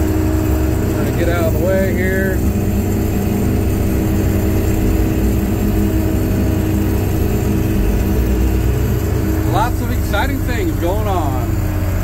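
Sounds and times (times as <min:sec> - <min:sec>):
truck engine rumbling: 0:00.0 - 0:12.0.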